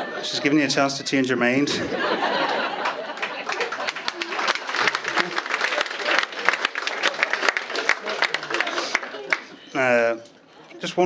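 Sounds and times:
audience laughing: 0.0 - 9.7
audience clapping: 2.7 - 9.7.

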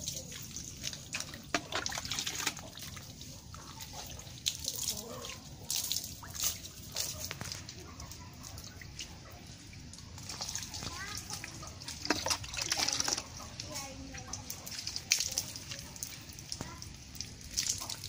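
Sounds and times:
plastic dipper scooping water: 0.0 - 5.1, 10.1 - 16.8
water poured splashing: 0.0 - 18.0.

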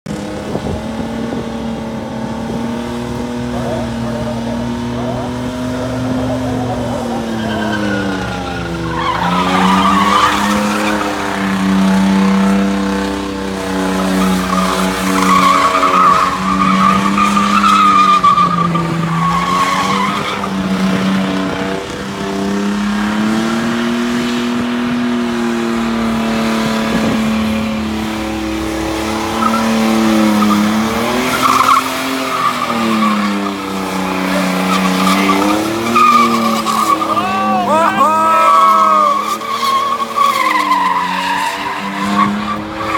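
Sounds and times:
car engine revving: 0.1 - 42.9
tyres squealing: 3.3 - 20.8, 27.6 - 42.9.

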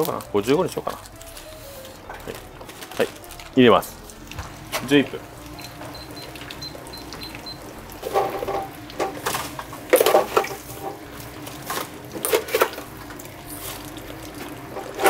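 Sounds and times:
short high beeps: 5.6 - 7.6.

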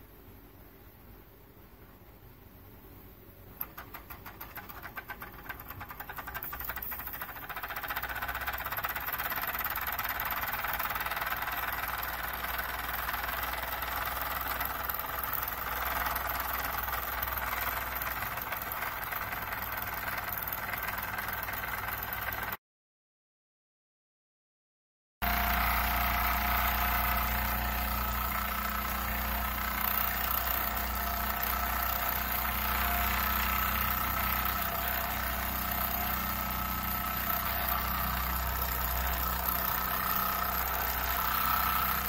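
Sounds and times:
toy steam engine exhaust puffs: 3.6 - 22.6.

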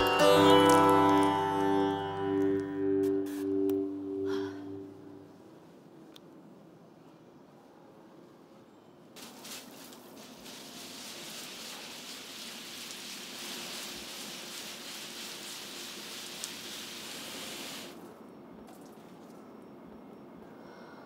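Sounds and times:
hose nozzle spraying water: 9.2 - 18.0.

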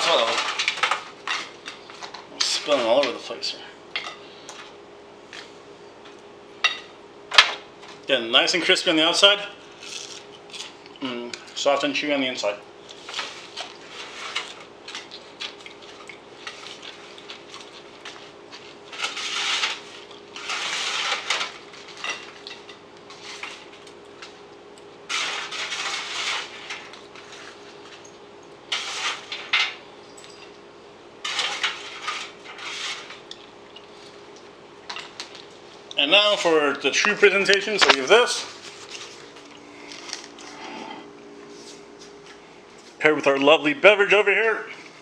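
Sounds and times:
faint steady hum: 0.0 - 45.0
scraping and clattering on metal pan: 31.2 - 33.2.

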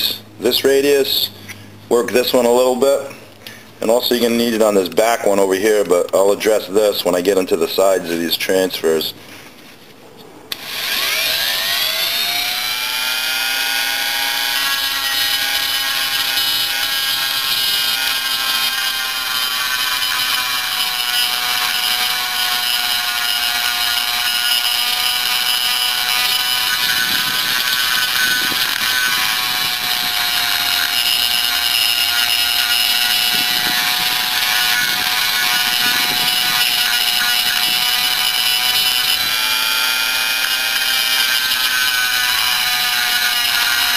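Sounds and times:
rotary tool grinding metal: 10.5 - 43.9.

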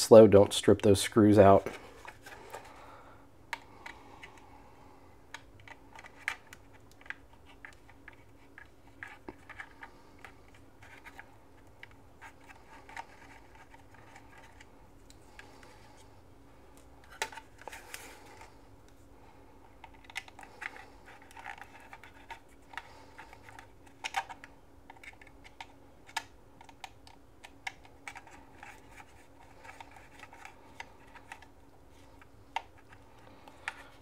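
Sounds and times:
hands handling plastic: 16.7 - 34.0.

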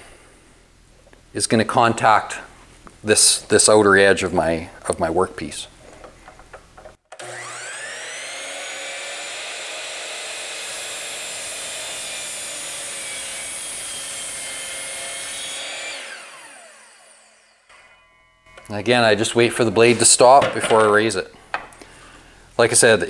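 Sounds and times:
mitre saw motor whining: 7.1 - 18.7
saw blade cutting board: 7.1 - 20.3.

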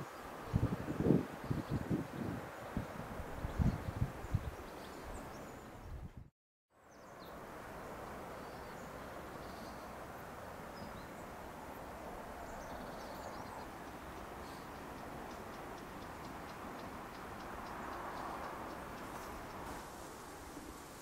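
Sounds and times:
steady background hiss: 6.8 - 21.0.

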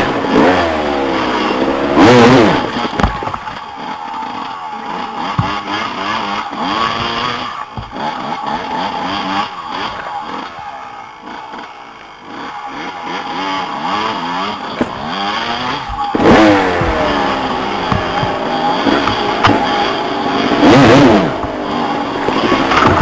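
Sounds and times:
dirt bike engine revving: 0.0 - 23.0
low thumps over rocks: 15.9 - 19.9.

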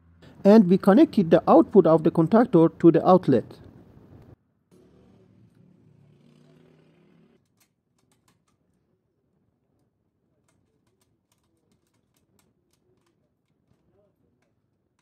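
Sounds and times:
wire clicks and taps: 7.4 - 8.8, 9.8 - 15.0.

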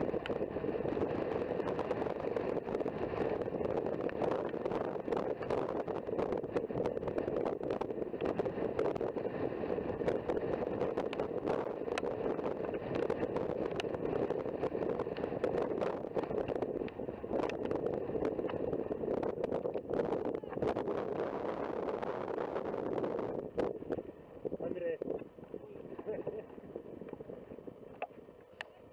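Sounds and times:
crackles and pops: 0.0 - 24.1, 24.8 - 28.8
wind rushing over microphone: 0.0 - 28.9.

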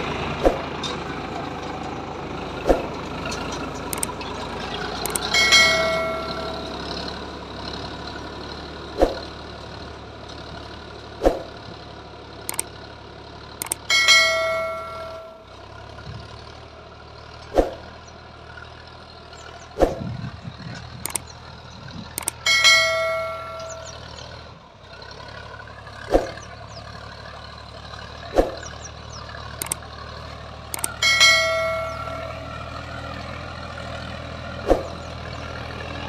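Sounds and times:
tractor diesel engine running: 0.0 - 36.0
metal clanks from implement: 0.5 - 7.4, 12.5 - 12.7, 13.6 - 16.4, 20.6 - 24.4, 28.6 - 30.0, 30.7 - 33.0
ringing metal clang: 5.1 - 7.2, 13.6 - 15.5, 22.2 - 24.3, 30.8 - 33.0.

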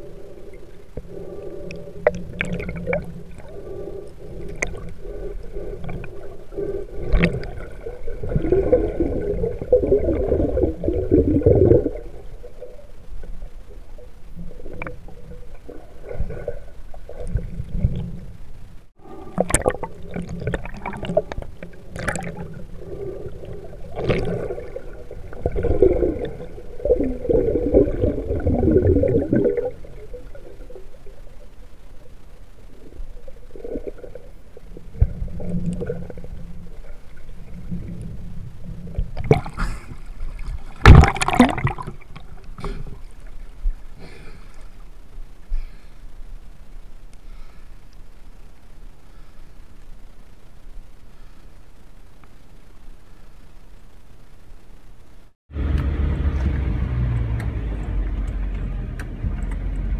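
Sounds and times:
water bubbling: 0.0 - 44.1
muffled underwater river rushing: 0.0 - 55.4.

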